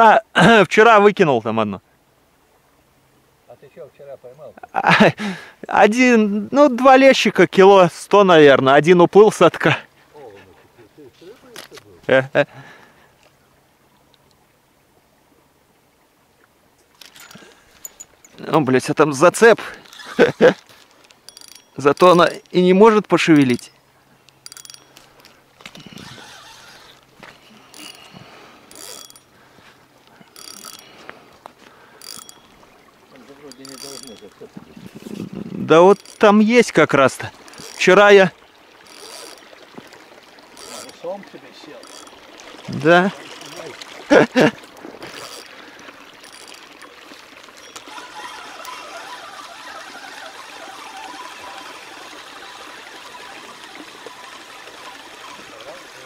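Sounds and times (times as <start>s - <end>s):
fishing reel ratcheting whir: 19.8s - 20.4s, 21.2s - 22.6s, 23.4s - 29.3s, 30.3s - 31.0s, 32.0s - 32.6s, 33.4s - 34.3s, 35.8s - 36.4s, 37.4s - 37.9s, 38.8s - 39.5s, 40.5s - 41.0s, 41.7s - 42.6s, 45.0s - 56.0s.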